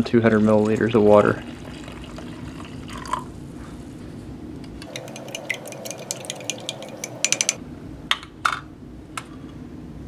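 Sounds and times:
spoon clicking against glass: 0:04.8 - 0:07.6
spoon knocking on glass: 0:04.9 - 0:07.6.

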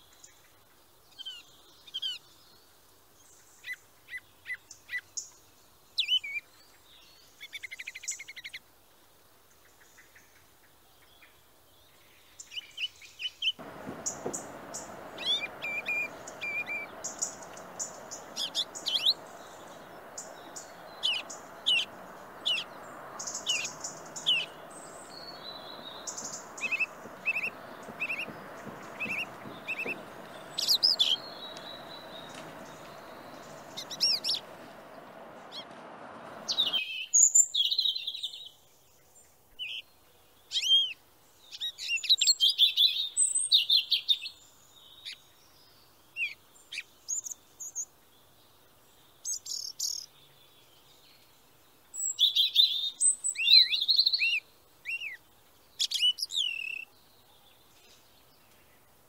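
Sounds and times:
small birds chirping: 0:13.6 - 0:36.8
steady background noise: 0:13.6 - 0:36.8.

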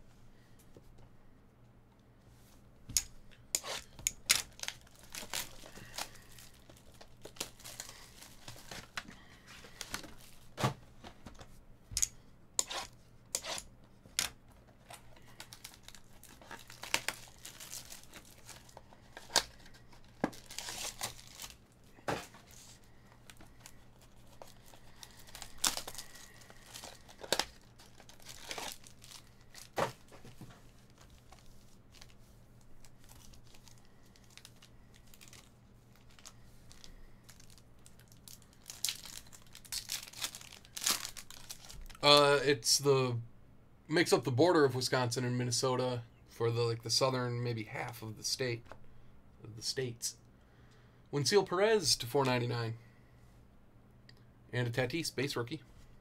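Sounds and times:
plastic wrapping crinkling and tearing: 0:03.6 - 0:10.6, 0:14.2 - 0:42.1.

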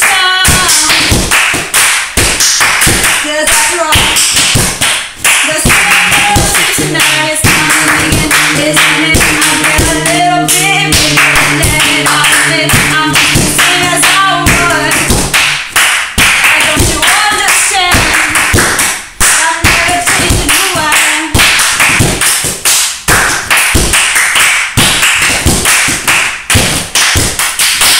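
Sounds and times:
people singing: 0:05.3 - 0:15.6, 0:16.4 - 0:18.4, 0:19.4 - 0:21.2.

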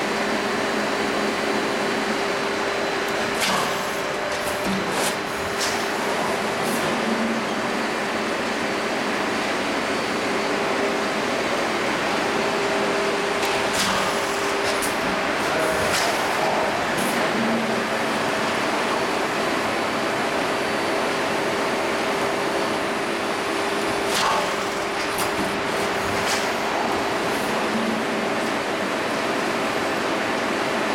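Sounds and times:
machine humming: 0:00.3 - 0:09.7, 0:11.6 - 0:30.4.

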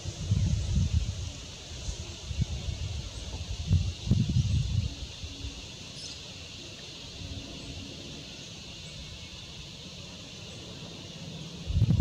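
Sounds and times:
high-pitched hiss: 0:00.0 - 0:12.0.

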